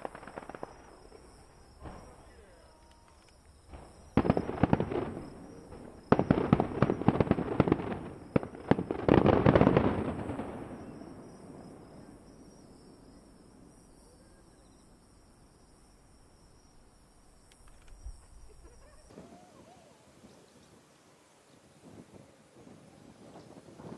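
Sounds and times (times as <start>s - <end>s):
fireworks bangs and crackles: 0.0s - 2.7s, 3.4s - 12.8s, 19.0s - 21.0s, 21.6s - 23.9s.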